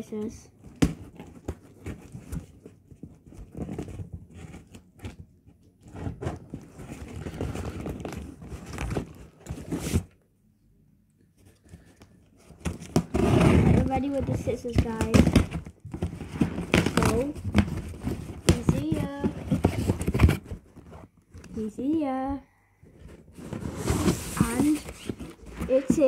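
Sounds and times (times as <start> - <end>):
packaging rustling and tearing: 5.8 - 10.1, 12.4 - 21.7, 23.2 - 26.0.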